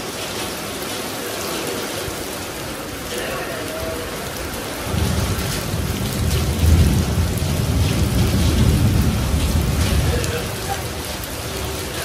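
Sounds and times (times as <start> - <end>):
heavy rain pouring: 0.0 - 12.0
thunder rumbling: 3.8 - 12.0.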